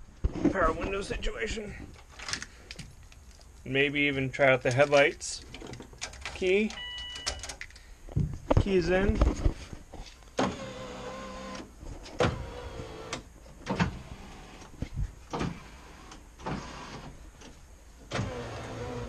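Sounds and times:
power window motor whine: 10.4 - 14.7, 18.1 - 19.0.

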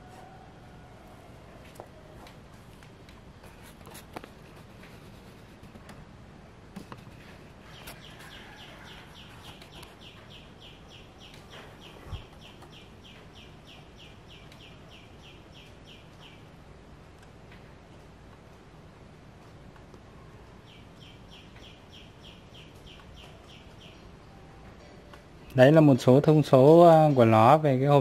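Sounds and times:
bird chirping in falling notes: 7.6 - 16.5.

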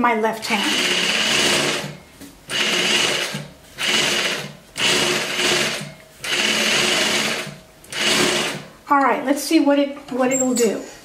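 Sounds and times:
sewing machine stitching in spurts: 0.6 - 1.9, 2.5 - 8.7.

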